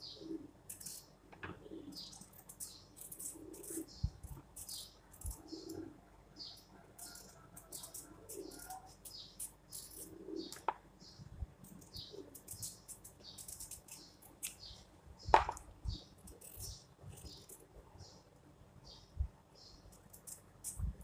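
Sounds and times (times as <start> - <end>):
peeler scraping carrot: 7.1 - 10.1, 12.2 - 14.6, 16.2 - 17.6.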